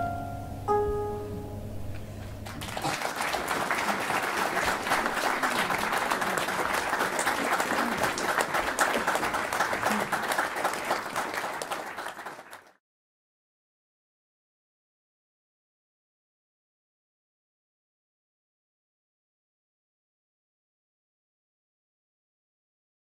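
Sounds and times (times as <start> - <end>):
audience applauding: 2.4 - 12.8.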